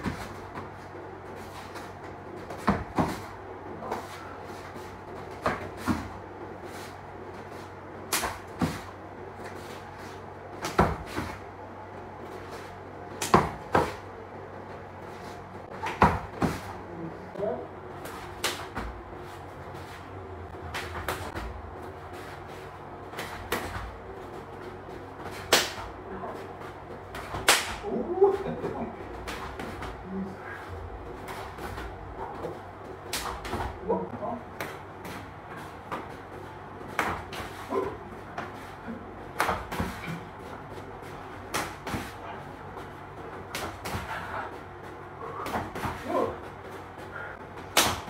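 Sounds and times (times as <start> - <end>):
hands slapping and striking: 8.1 - 8.8, 18.0 - 18.8, 25.2 - 25.9, 27.1 - 27.9, 33.0 - 33.8, 36.9 - 37.6, 39.4 - 40.0, 41.5 - 42.1, 43.5 - 44.1, 47.7 - 48.0
slaps and thuds of blocked punches: 8.1 - 8.8, 13.1 - 14.0, 18.3 - 18.9, 25.4 - 25.9, 27.1 - 27.8, 33.0 - 33.8, 47.7 - 48.0.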